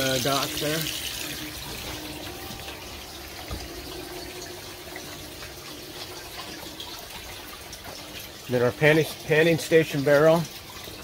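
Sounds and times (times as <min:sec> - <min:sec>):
water running down sluice: 0:00.0 - 0:11.0.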